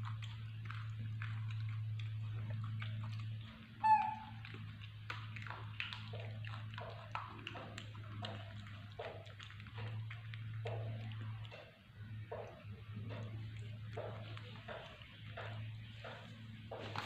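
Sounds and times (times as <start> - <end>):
monkey chewing banana: 0.0 - 17.0
monkey squeak: 3.8 - 4.4.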